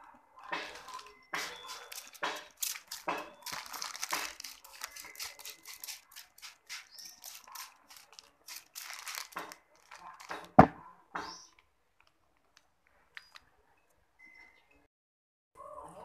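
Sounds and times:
plastic bag crinkling: 0.4 - 10.8
spray bottle squirting: 1.4 - 9.5.

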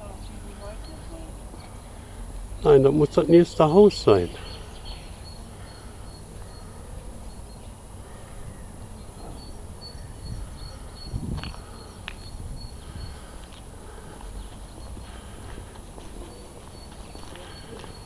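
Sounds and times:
faint high chirping: 3.8 - 13.4
wind rumble on microphone: 10.0 - 13.2.

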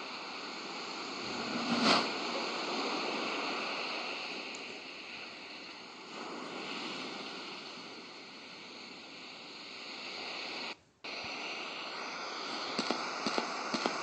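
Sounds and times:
rushing water like surf: 0.0 - 10.8.

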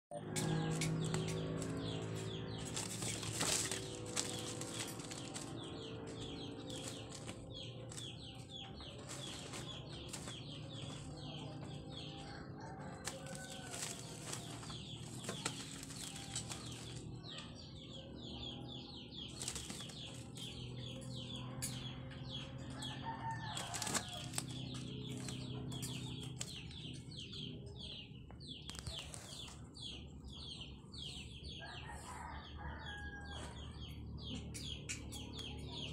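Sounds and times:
birds chirping: 0.1 - 35.9
plastic tarp rustling and crinkling: 2.6 - 5.6.

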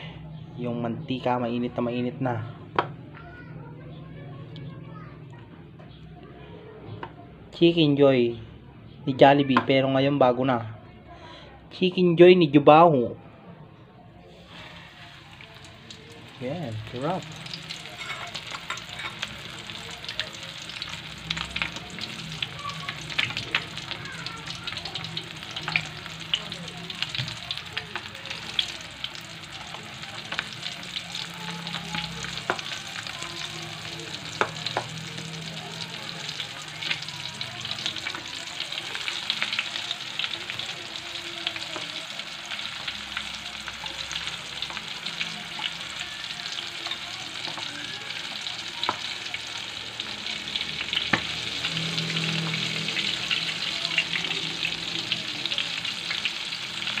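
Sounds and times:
chicken deep-frying in oil: 14.3 - 57.0
oil popping and crackling: 14.4 - 57.0.

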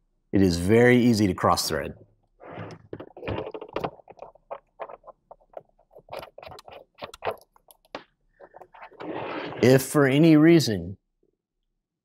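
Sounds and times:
plastic clicks and scrapes: 2.4 - 9.8.

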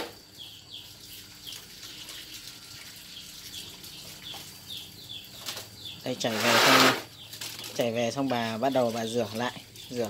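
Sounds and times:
bird chirping: 0.0 - 10.0
tap water running into basin: 0.8 - 7.2.

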